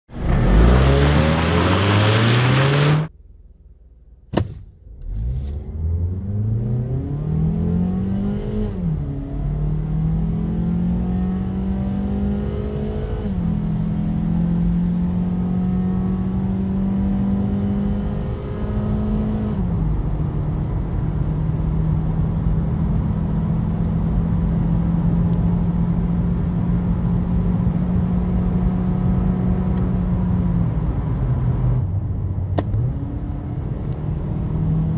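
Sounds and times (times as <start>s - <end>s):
car engine at full throttle: 0.1s - 3.2s, 4.4s - 34.9s
click: 33.8s - 34.0s.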